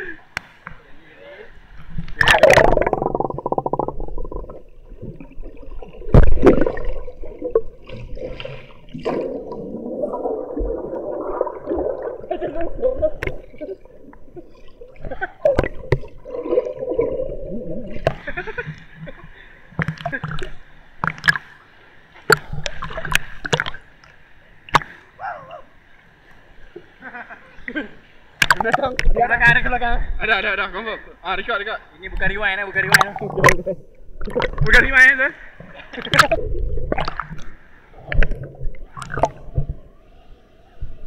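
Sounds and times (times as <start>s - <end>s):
muffled underwater gurgling: 2.2s - 7.8s, 9.1s - 18.6s.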